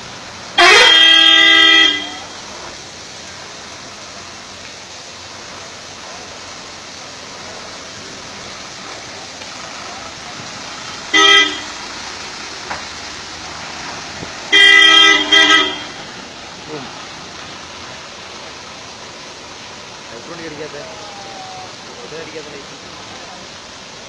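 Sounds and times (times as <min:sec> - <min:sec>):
water spraying hiss: 0:00.0 - 0:24.0
bus air horn: 0:00.6 - 0:02.7, 0:10.8 - 0:11.8, 0:14.5 - 0:16.1.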